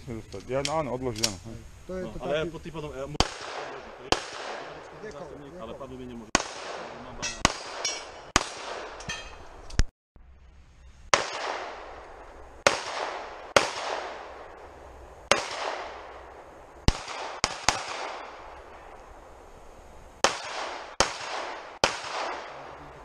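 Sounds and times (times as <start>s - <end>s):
pistol shots with echo: 3.2s - 5.0s, 6.3s - 9.0s, 11.1s - 14.6s, 15.3s - 16.2s, 16.9s - 18.9s, 20.2s - 22.9s.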